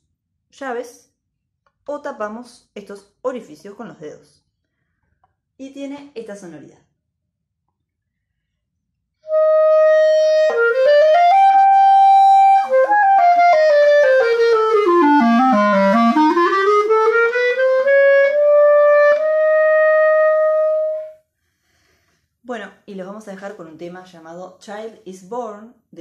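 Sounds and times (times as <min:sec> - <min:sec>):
clarinet playing: 0:09.2 - 0:21.2.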